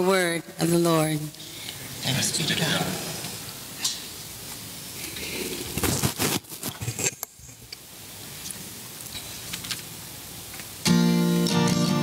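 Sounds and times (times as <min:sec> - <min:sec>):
rustling near microphone: 0:05.3 - 0:07.6.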